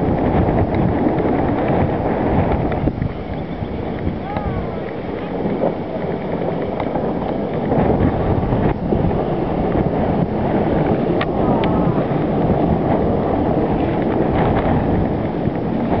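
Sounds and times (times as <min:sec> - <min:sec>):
wind buffeting microphone: 0:00.0 - 0:16.0
faint clicks: 0:02.5 - 0:07.7.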